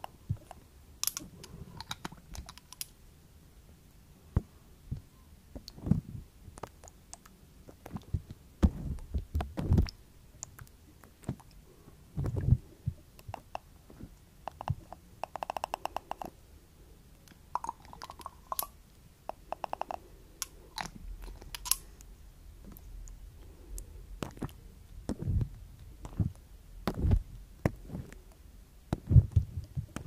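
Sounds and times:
glassy clicks: 0:17.6 - 0:21.8.

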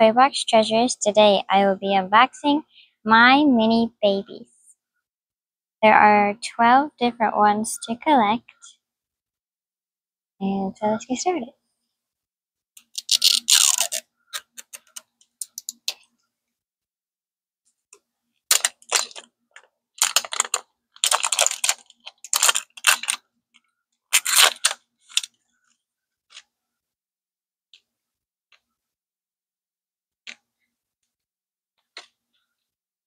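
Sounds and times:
plastic wrapper crinkling and tearing: 0:12.8 - 0:15.0, 0:18.5 - 0:23.2, 0:24.1 - 0:25.4.

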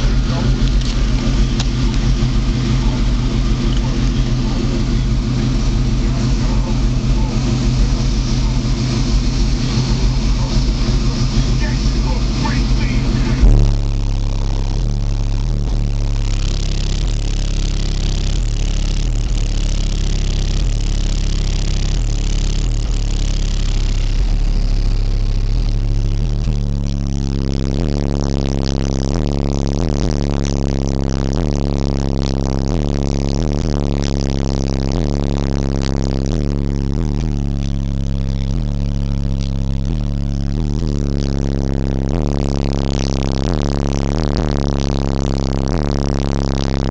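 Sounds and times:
car engine droning: 0:00.0 - 0:46.9.

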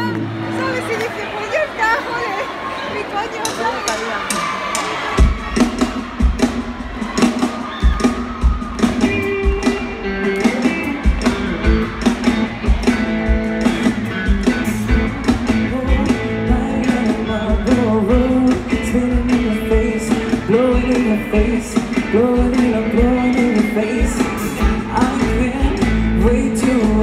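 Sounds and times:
live pop-rock band playing: 0:03.4 - 0:27.0
person singing: 0:14.1 - 0:27.0.

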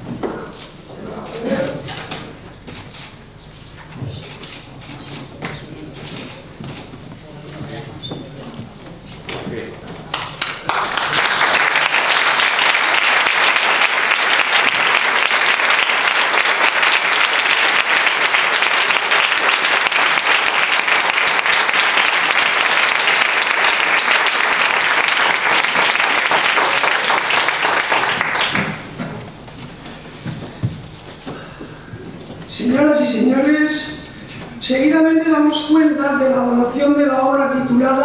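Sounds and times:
audience clapping: 0:10.0 - 0:29.2.

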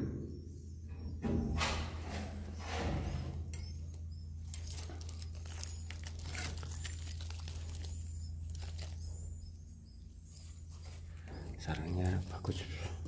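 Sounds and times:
steady low hum: 0:00.0 - 0:13.0
swiftlets clicking and chirping: 0:03.6 - 0:09.5.

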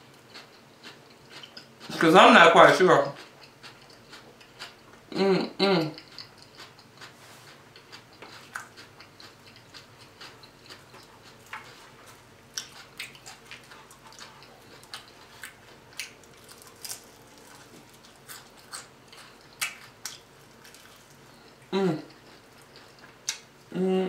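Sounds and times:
person chewing: 0:00.0 - 0:02.1, 0:02.7 - 0:23.6.

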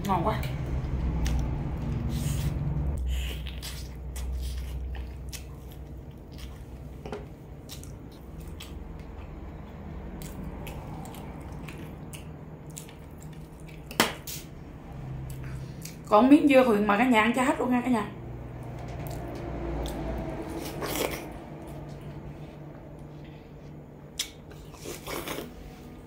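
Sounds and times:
chewing crispy fried chicken: 0:10.2 - 0:14.4.

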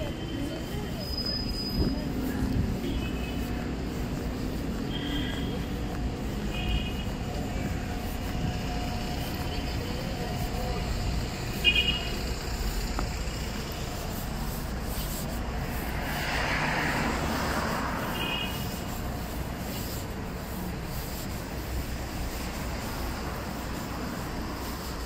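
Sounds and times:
rumble of passing vehicles: 0:00.0 - 0:25.0
vehicle hiss: 0:00.0 - 0:25.0.

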